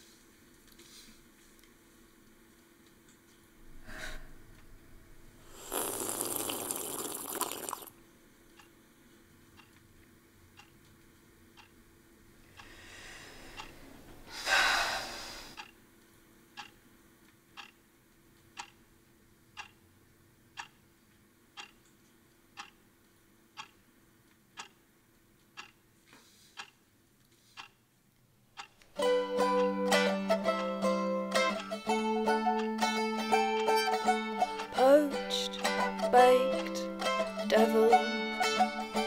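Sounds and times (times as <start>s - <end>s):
person breathing out heavily: 3.8s - 4.4s, 12.6s - 15.6s
clock ticking: 8.5s - 8.8s, 9.5s - 9.8s, 10.5s - 11.8s, 12.5s - 12.7s, 13.5s - 13.7s, 15.6s - 15.8s, 16.5s - 16.8s, 17.5s - 18.9s, 19.5s - 19.8s, 20.5s - 20.8s, 21.5s - 22.9s, 23.5s - 23.9s, 24.5s - 25.8s, 26.5s - 26.9s, 27.5s - 27.8s, 28.5s - 39.0s.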